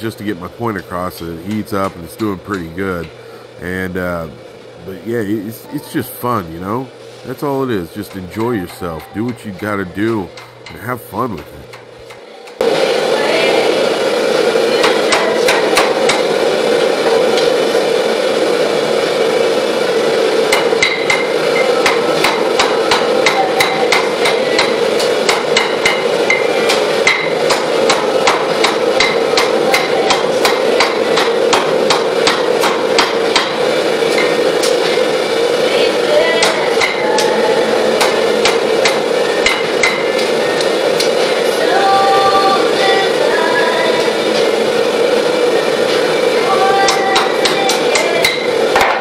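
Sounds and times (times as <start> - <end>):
hammer striking steel on anvil: 20.5 - 34.4, 36.4 - 37.3, 38.0 - 40.2.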